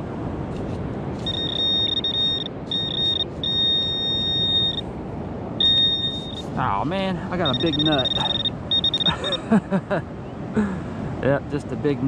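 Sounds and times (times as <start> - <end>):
metal detector beeping: 1.2 - 4.8, 5.6 - 6.6, 7.4 - 9.4.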